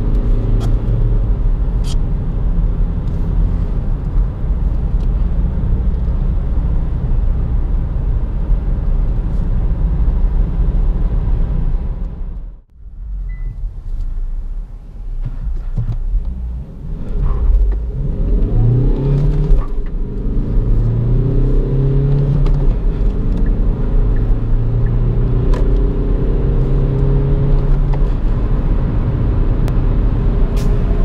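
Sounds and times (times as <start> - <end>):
car engine accelerating: 15.2 - 31.0.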